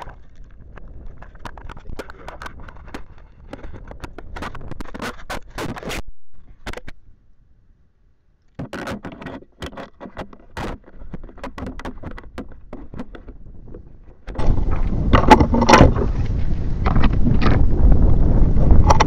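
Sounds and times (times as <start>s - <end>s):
wind rushing on microphone: 0.0s - 6.8s, 10.8s - 19.0s
plastic parts clicking and scraping: 0.0s - 7.0s, 8.5s - 17.7s, 18.7s - 19.0s.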